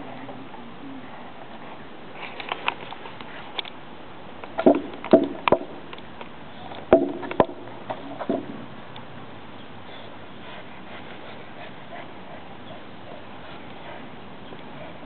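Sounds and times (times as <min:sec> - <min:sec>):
dogs making sharp knocks: 0:04.6 - 0:05.8, 0:06.9 - 0:08.6.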